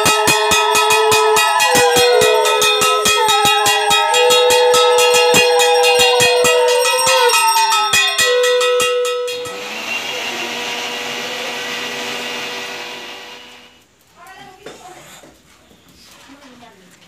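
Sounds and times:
hand bell rung rapidly: 0.0 - 9.8
conch shell blown: 0.0 - 10.7.

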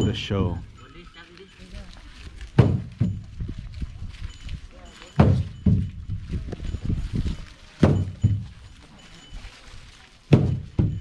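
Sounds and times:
hollow wooden bell clonks: 0.0 - 1.9, 2.5 - 11.0
soft low thuds: 2.4 - 4.1, 5.2 - 8.7, 10.3 - 11.0.

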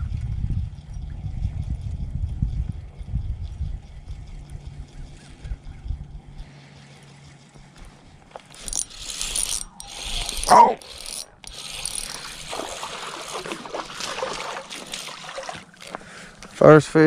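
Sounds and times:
fishing reel gears whirring: 6.8 - 14.1, 14.7 - 16.6.

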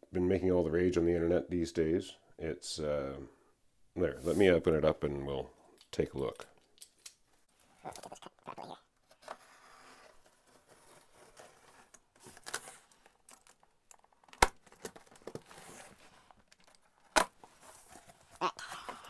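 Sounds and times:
cardboard scraping and rustling: 9.1 - 13.1, 14.6 - 16.4.

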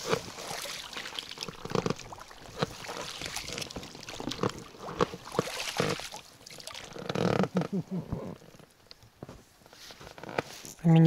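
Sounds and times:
water splashing around boat: 0.0 - 11.0.

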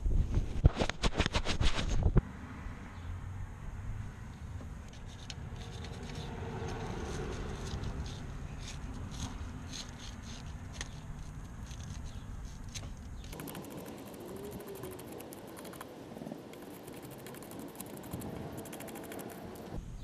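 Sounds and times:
low background hum: 2.2 - 20.0
wire brush scrubbing metal: 5.0 - 19.8.

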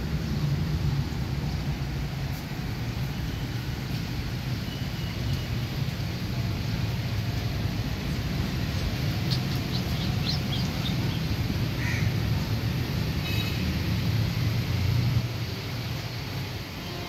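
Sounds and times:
bird chirping: 8.7 - 11.3.

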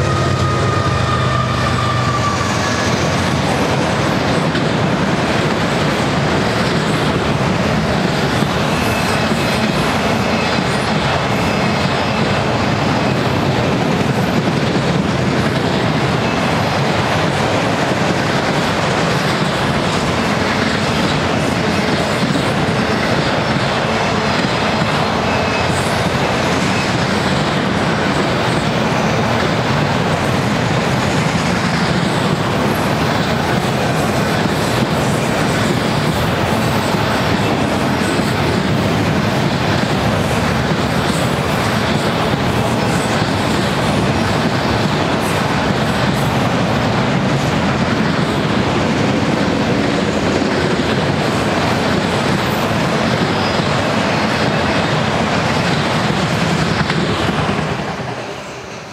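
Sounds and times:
high wheel squeal: 0.0 - 3.6, 8.6 - 12.4, 25.0 - 27.2
freight train wheels rumbling: 0.0 - 58.9.

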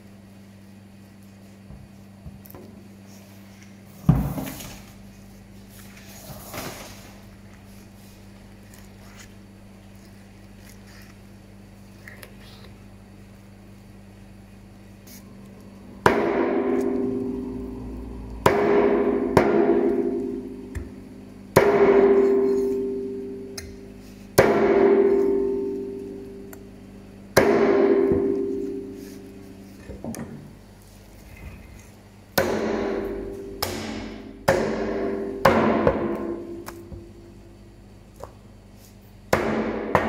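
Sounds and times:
deep drum strikes ringing: 15.9 - 22.3.

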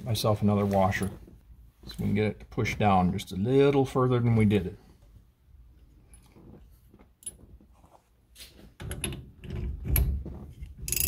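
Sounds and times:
metallic clicks and clatter: 8.8 - 11.0.

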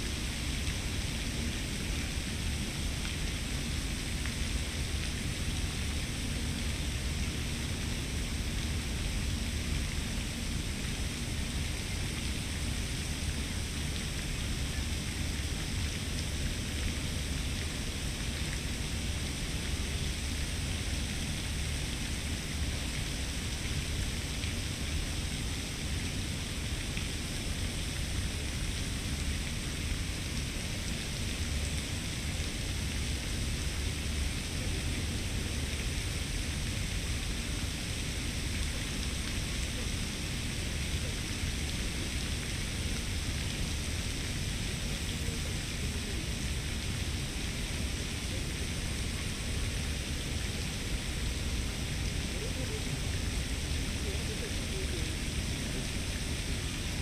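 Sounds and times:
steady hiss: 0.0 - 57.0.

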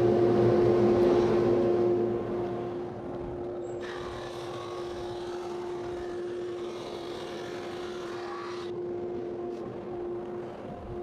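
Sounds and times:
hissing sanding noise: 3.8 - 8.7.

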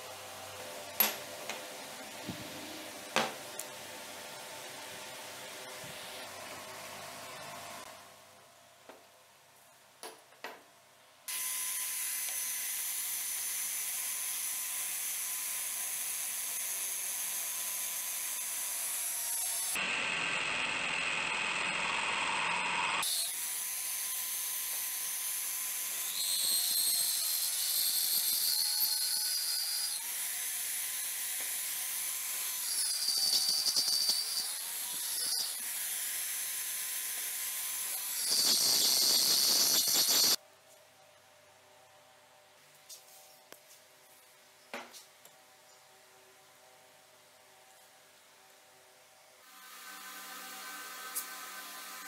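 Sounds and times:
drill bit squealing on steel: 32.7 - 35.6, 38.1 - 40.4.

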